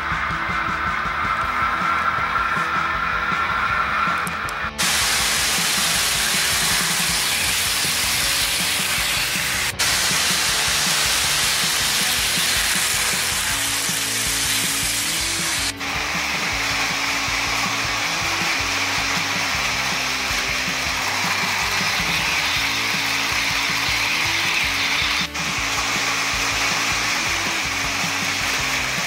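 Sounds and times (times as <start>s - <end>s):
motor whir: 0.0s - 29.0s
model train wheels clattering: 4.8s - 15.7s.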